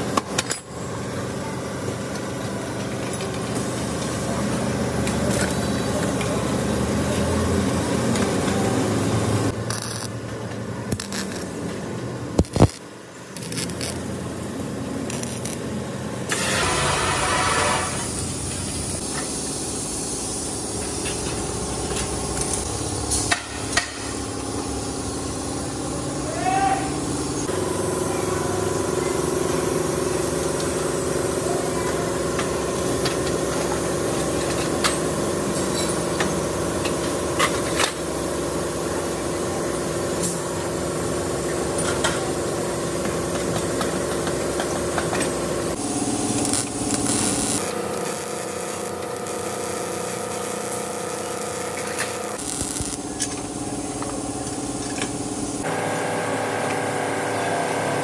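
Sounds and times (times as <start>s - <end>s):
workshop machinery hum: 0.0s - 58.0s.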